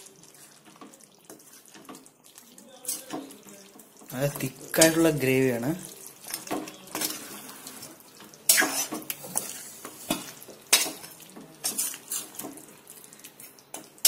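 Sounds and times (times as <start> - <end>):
spatula scraping a pan: 6.1 - 12.8.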